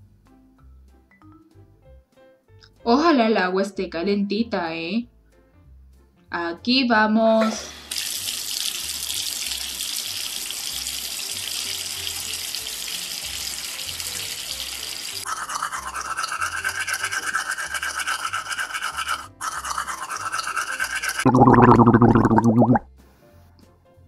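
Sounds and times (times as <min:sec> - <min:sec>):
shower water running: 0:07.4 - 0:22.7
toothbrush scrubbing: 0:13.4 - 0:22.8.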